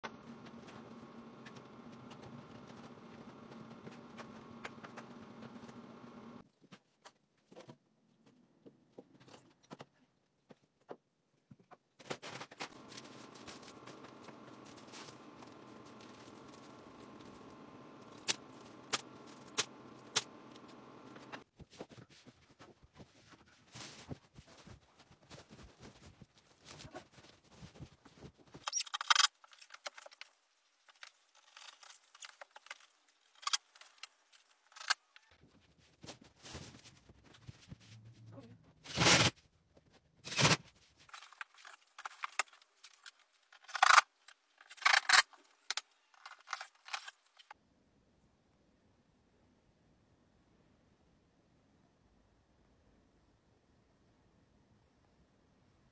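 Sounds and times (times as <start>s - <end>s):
insulation batts rustling: 11.8s - 47.6s
faint steady hum: 12.8s - 21.4s.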